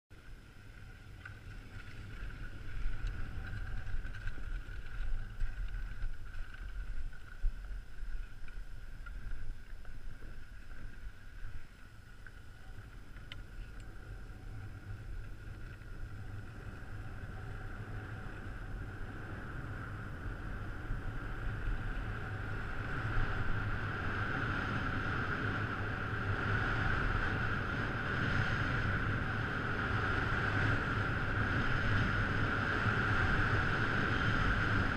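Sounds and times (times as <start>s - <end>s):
wind rumbling on microphone: 0.1s - 34.9s
skis sliding on snow: 0.4s - 20.0s.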